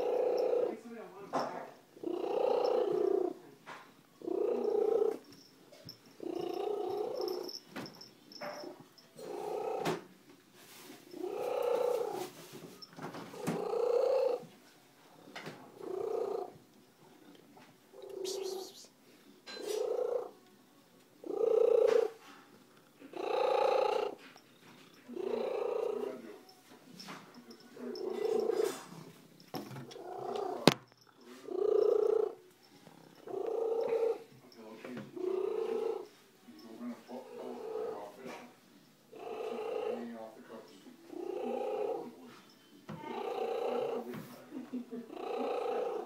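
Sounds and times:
cat purring loudly: 0.0s - 0.8s, 2.0s - 3.4s, 4.2s - 5.3s, 6.2s - 7.6s, 8.4s - 10.0s, 11.1s - 12.3s, 13.3s - 14.5s, 15.1s - 17.4s, 19.6s - 20.4s, 21.2s - 22.2s, 23.0s - 24.2s, 24.8s - 26.3s, 27.8s - 29.0s, 30.0s - 34.3s, 35.1s - 36.2s, 37.1s - 38.2s, 39.2s - 40.1s, 41.1s - 42.2s, 43.0s - 44.1s, 45.1s - 46.0s.

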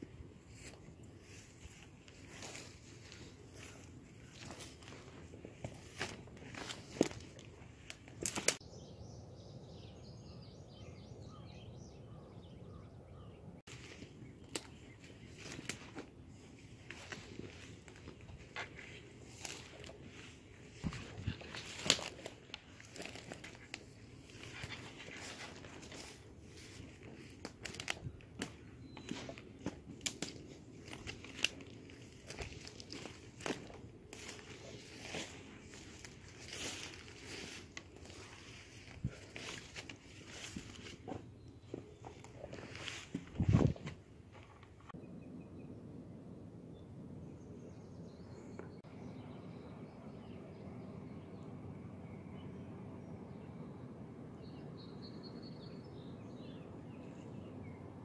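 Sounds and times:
footsteps through brush: 0.0s - 8.6s, 13.7s - 45.0s
leaves and twigs rustling: 0.0s - 8.6s, 13.7s - 45.0s
twigs snapping: 5.8s - 8.6s, 13.7s - 16.1s, 16.9s - 41.1s
small bird singing: 8.6s - 15.6s.

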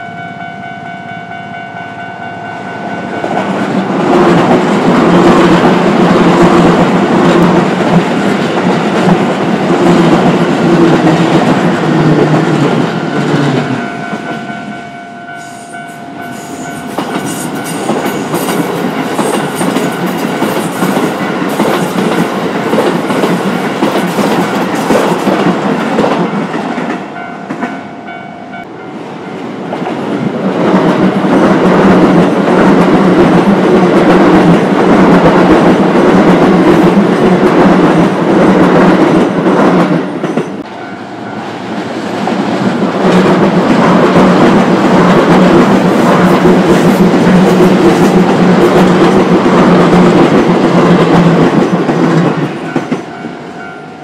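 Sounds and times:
crossing warning bell ringing: 0.0s - 6.2s, 7.8s - 29.7s, 40.2s - 41.8s, 51.7s - 54.0s.

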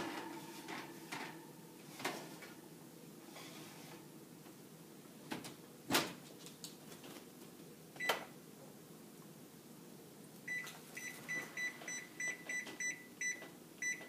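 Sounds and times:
baking tray sliding onto rack: 0.0s - 2.6s, 3.2s - 4.1s.

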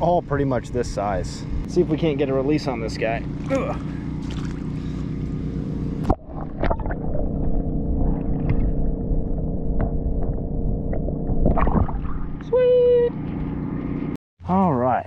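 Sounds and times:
steady low hum: 0.0s - 14.2s
water splash: 3.4s - 4.7s, 6.0s - 9.0s, 9.8s - 12.4s.

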